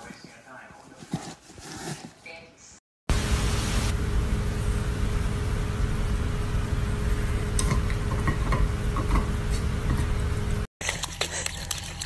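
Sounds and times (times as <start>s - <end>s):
loud steady hiss: 3.1s - 7.1s.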